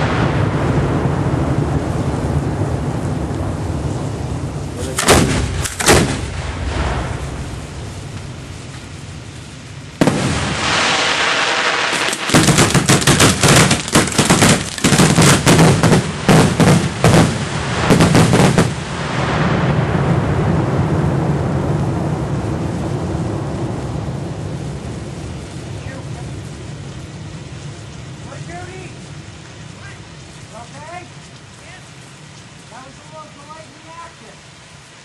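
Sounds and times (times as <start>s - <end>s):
fireworks sharp bangs: 0.0s - 20.2s
fireworks hissing rush: 0.0s - 35.0s
rumble and hiss: 0.0s - 35.0s.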